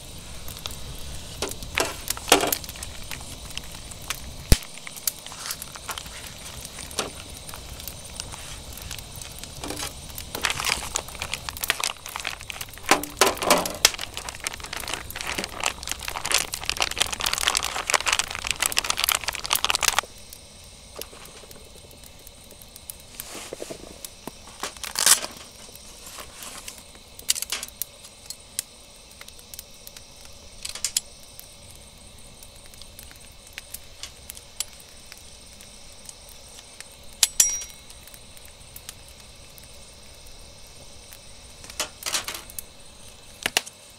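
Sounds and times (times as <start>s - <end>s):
plastic packaging crinkling: 0.5s - 20.0s, 23.2s - 26.8s.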